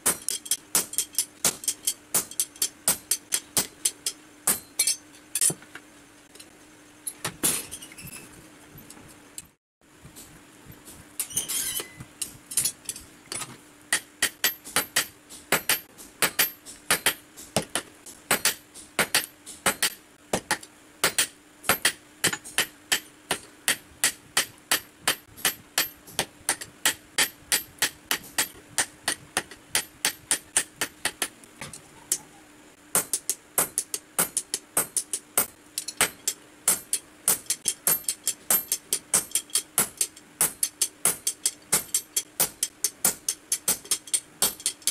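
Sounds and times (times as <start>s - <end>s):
hammer striking hot steel on anvil: 0.0s - 5.6s, 13.9s - 31.3s, 32.9s - 44.9s.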